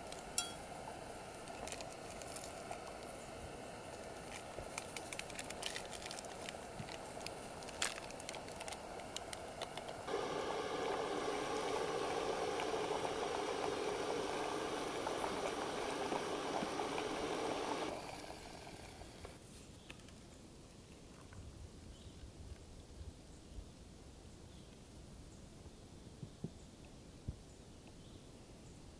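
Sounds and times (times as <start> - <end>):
packet rustling: 4.2 - 10.0
gas burner rushing: 8.7 - 19.4
water bubbling: 10.1 - 19.3.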